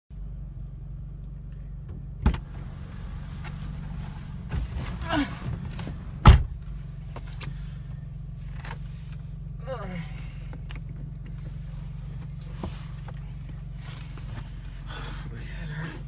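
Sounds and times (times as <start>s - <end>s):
steady low hum: 0.1s - 16.0s
car door opening clunk: 1.8s - 2.8s, 4.4s - 6.7s
car door slamming: 1.9s - 2.8s, 4.4s - 6.7s
rustling in seat: 2.4s - 9.3s, 10.4s - 15.2s.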